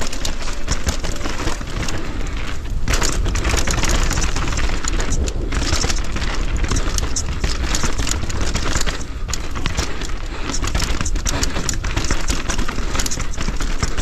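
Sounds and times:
bike rattling and knocking: 0.0s - 14.0s
tyres crunching over dirt: 0.0s - 14.0s
wind on microphone: 1.9s - 9.3s.

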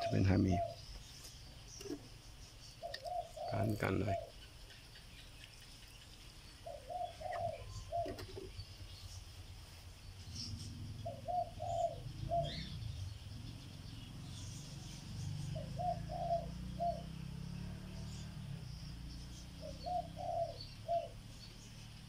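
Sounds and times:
dove cooing: 0.0s - 0.9s, 2.8s - 4.4s, 6.6s - 8.6s, 10.3s - 18.4s, 19.3s - 21.3s
faint bird chirps: 0.0s - 22.0s
low steady rumble: 2.0s - 15.9s.

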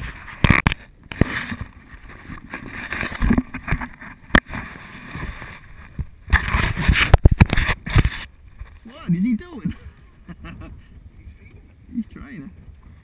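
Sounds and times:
camera handling knocks and bumps: 6.0s - 8.8s.

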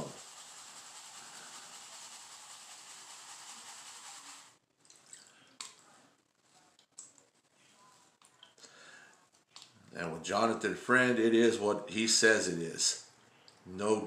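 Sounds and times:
small water splashes: 4.8s - 5.8s.

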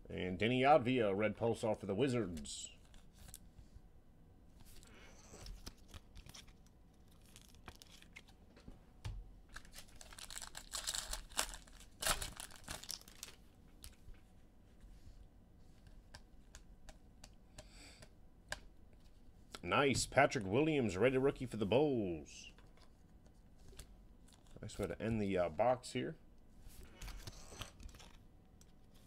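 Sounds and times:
cards clicking and rustling: 4.6s - 8.4s, 26.9s - 29.0s
foil wrapper tearing and crinkling: 5.3s - 8.3s, 9.5s - 14.0s.

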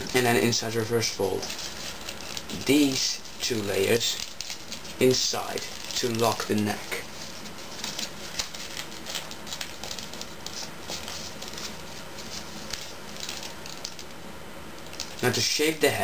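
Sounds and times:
paper rustling and crinkling: 0.0s - 14.2s, 14.8s - 15.4s
steady hiss: 0.0s - 16.0s.

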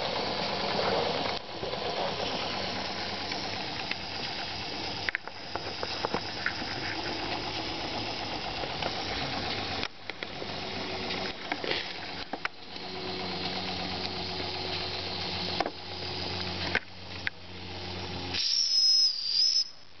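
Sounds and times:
steam engine hissing: 0.0s - 11.0s, 18.3s - 20.0s
loud high steam whistle: 18.3s - 19.9s.

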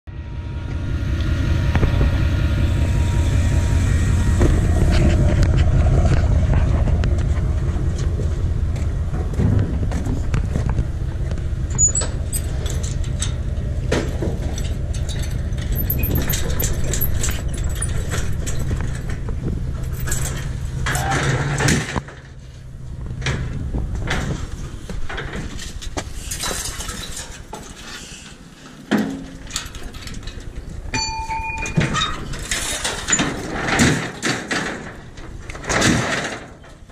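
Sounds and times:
pickup truck engine running: 0.4s - 21.0s
light metal rattling: 10.2s - 22.3s
metal latch and chain clicking: 11.7s - 13.4s, 14.0s - 19.2s, 19.8s - 21.8s, 29.3s - 34.6s.

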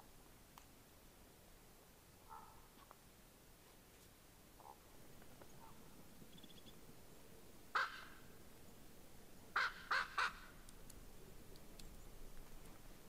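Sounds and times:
raven calling: 7.7s - 8.4s, 9.5s - 10.7s.

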